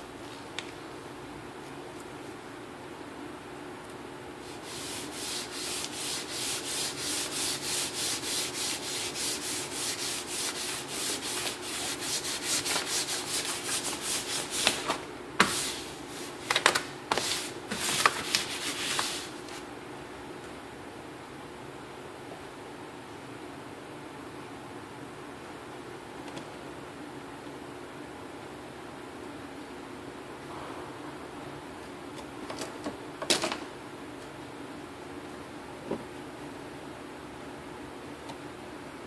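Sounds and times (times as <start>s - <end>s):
hands rubbing over paper: 4.4s - 19.6s.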